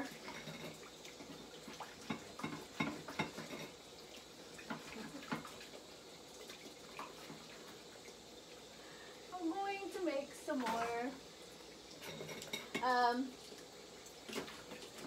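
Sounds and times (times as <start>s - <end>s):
dishes and pans clattering: 0.0s - 3.8s, 4.6s - 5.5s, 12.0s - 13.0s
tap water running: 0.0s - 15.0s.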